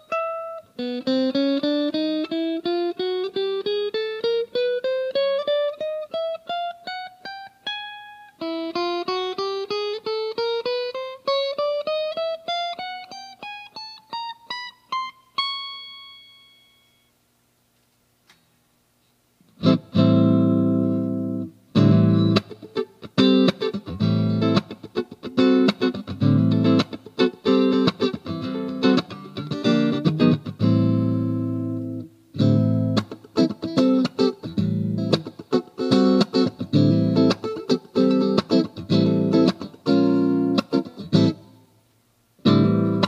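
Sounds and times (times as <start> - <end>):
strummed guitar chords: 19.6 - 41.6, 42.4 - 43.0.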